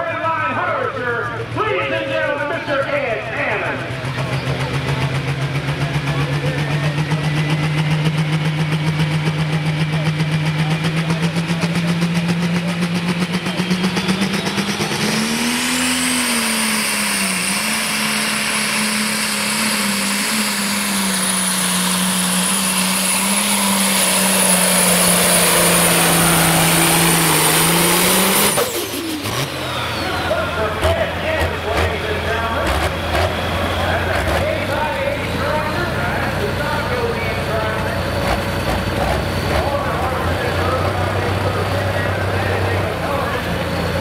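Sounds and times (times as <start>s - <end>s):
diesel tractor engine revving: 0.0s - 44.0s
high whistle: 13.4s - 15.4s.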